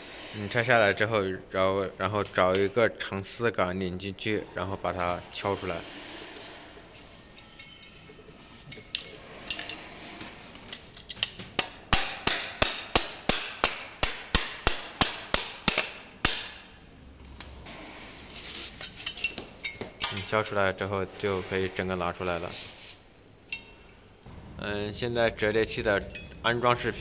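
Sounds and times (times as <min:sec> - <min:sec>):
hammer striking metal rod: 0:11.6 - 0:16.8
light metal clinks of handling: 0:18.8 - 0:20.6.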